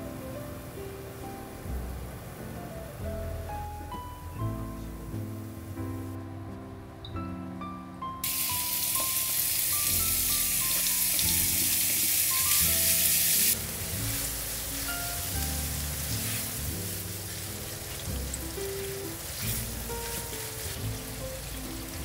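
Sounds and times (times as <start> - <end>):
meat sizzling in a frying pan: 8.2 - 22.0
spatula stirring meat: 13.6 - 22.0.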